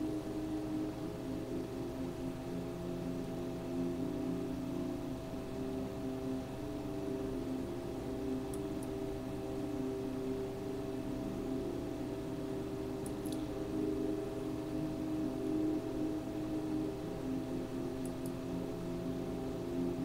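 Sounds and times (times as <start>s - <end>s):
ambient drone music: 0.0s - 20.0s
soft hiss: 0.0s - 20.0s
faint high ticks: 8.5s - 9.0s, 13.0s - 13.5s.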